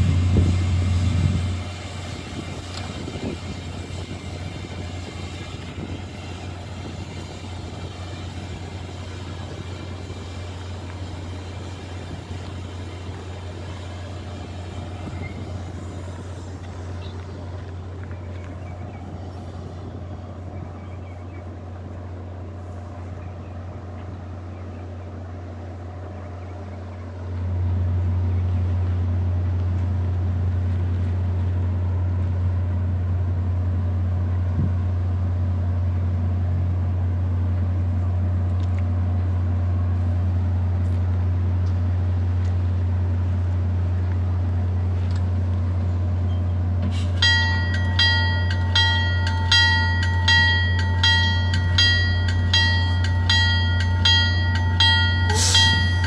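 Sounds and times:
diesel train engine drone: 0:00.0 - 0:56.0.

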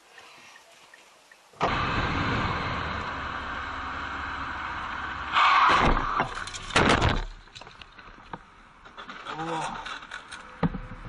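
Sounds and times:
wind and road noise: 0:00.0 - 0:11.0.

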